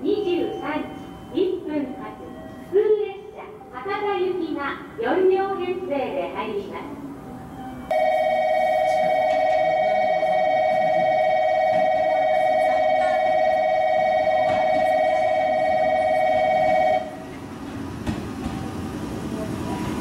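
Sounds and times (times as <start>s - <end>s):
trilling electronic station bell: 7.9s - 17.2s.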